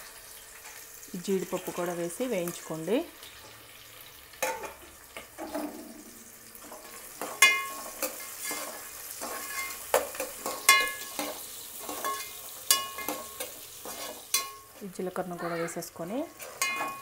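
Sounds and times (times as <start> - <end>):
onions sizzling in oil: 0.0 - 17.0
ladle clinking against pot: 7.3 - 8.6, 9.3 - 13.4, 14.3 - 14.6, 16.5 - 17.0.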